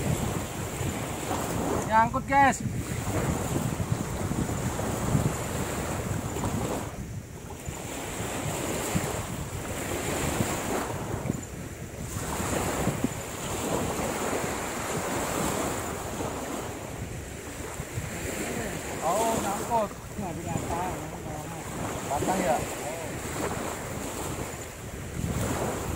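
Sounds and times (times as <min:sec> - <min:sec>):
waves washing on shore: 0:00.0 - 0:25.9
wind buffeting microphone: 0:00.0 - 0:25.9.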